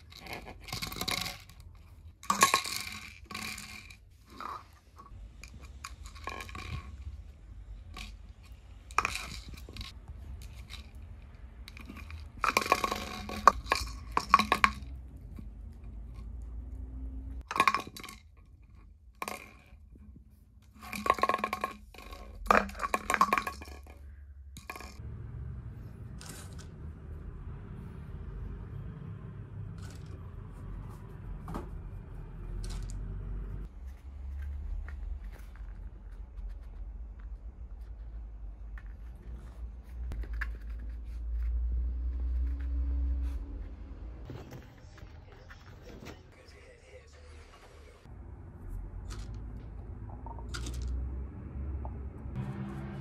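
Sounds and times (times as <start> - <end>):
kibble rattling in plastic bottle: 0.0 - 4.6, 11.7 - 14.9, 20.8 - 24.0.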